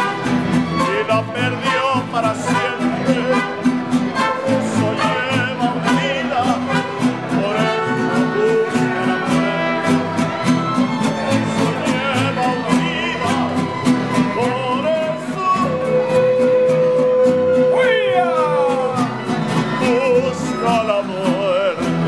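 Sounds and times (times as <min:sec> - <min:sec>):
violins with vibrato: 0:00.0 - 0:16.4
bass guitar: 0:00.0 - 0:22.0
guitars strumming: 0:00.0 - 0:22.0.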